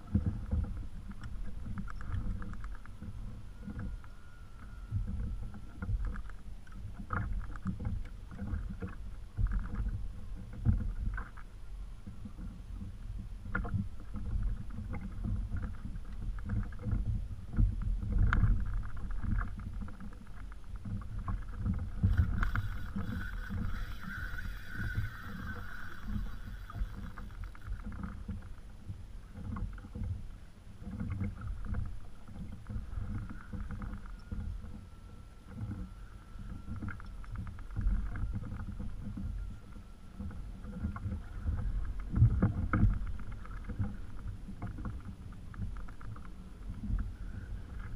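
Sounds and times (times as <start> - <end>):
water lapping against kayak hull: 0.0 - 47.9
wind rumble on microphone: 0.0 - 47.9
high whir: 22.0 - 27.8.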